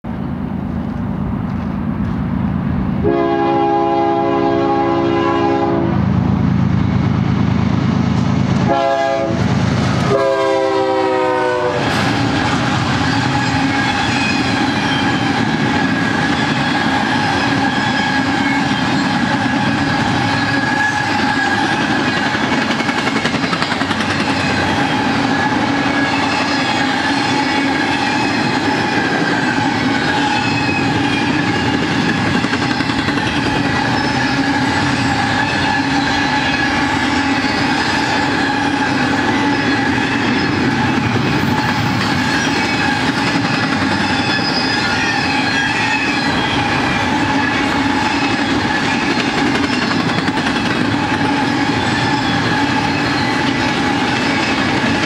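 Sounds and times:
locomotive air horn blasts: 0:03.0 - 0:06.0, 0:08.6 - 0:12.0.

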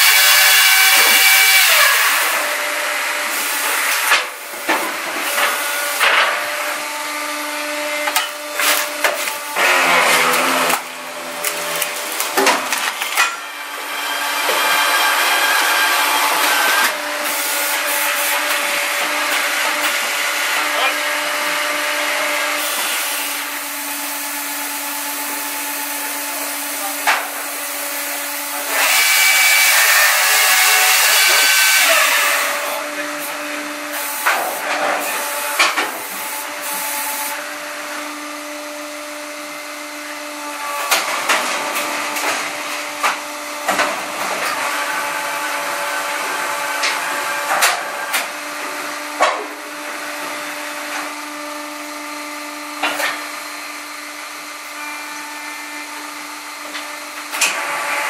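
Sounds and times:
saw cutting through log: 0:00.0 - 0:58.0.

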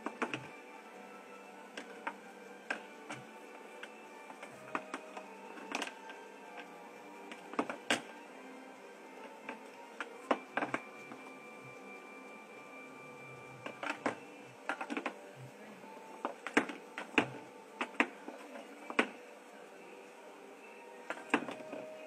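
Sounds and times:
cookie clicking and tapping on wood: 0:00.0 - 0:00.6, 0:01.8 - 0:06.7, 0:13.6 - 0:15.2, 0:16.2 - 0:19.2, 0:21.1 - 0:21.9.

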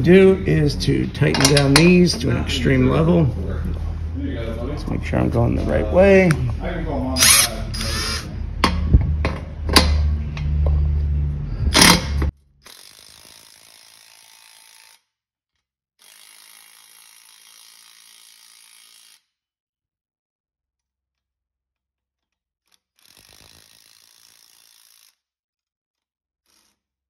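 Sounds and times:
ratchet clicks: 0:07.2 - 0:08.3, 0:16.0 - 0:19.3, 0:22.2 - 0:25.2, 0:26.5 - 0:26.9
electric ratchet motor drone: 0:07.2 - 0:08.4, 0:12.6 - 0:15.1, 0:16.0 - 0:19.4, 0:22.7 - 0:25.2, 0:26.4 - 0:27.0.

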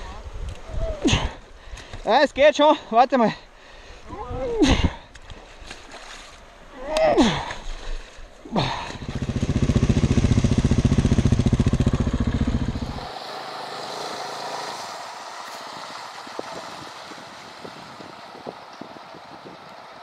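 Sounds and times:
distant motorcycle engine: 0:08.6 - 0:20.0
single-cylinder engine running: 0:09.0 - 0:20.0
river water rushing: 0:12.8 - 0:18.6.

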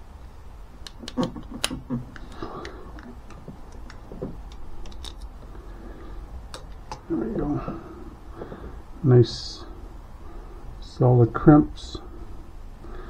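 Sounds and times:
low steady hum: 0:00.0 - 0:13.0
wire crimper clicking: 0:00.8 - 0:05.3.

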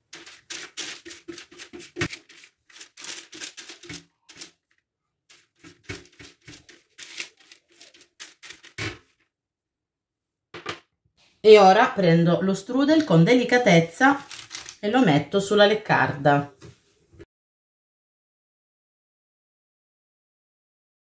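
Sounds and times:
pastry brush strokes on paper: 0:00.0 - 0:04.6, 0:05.3 - 0:08.7.

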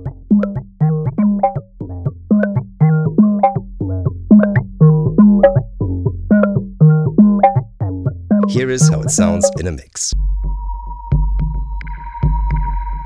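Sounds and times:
electronic drum pattern: 0:00.0 - 0:10.2.

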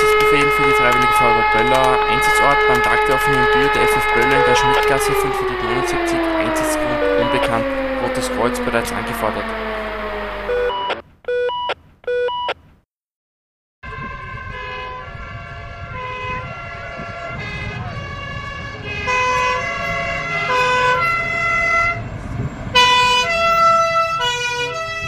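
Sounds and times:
low engine rumble: 0:00.0 - 0:10.9
two-tone fire truck sirens: 0:00.0 - 0:11.8, 0:13.8 - 0:25.0.

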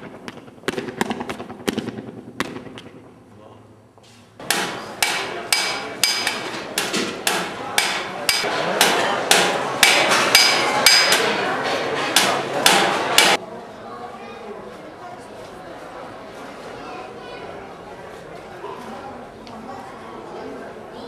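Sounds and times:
hammer beating metal tray: 0:04.4 - 0:13.4.

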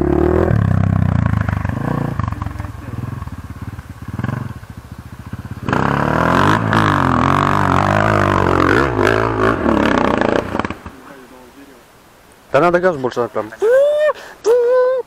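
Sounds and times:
dirt bike engine revving: 0:00.0 - 0:11.3.

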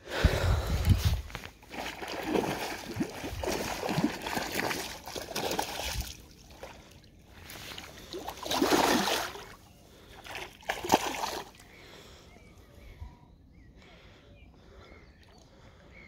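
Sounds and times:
fish splashing in water: 0:01.6 - 0:06.8, 0:07.7 - 0:11.6.

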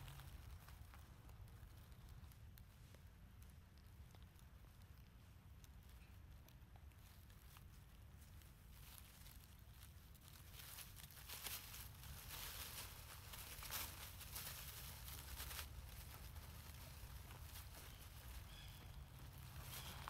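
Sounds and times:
dry leaves rustling and crackling: 0:00.0 - 0:03.0, 0:06.9 - 0:20.0
low steady rumble: 0:00.0 - 0:20.0.

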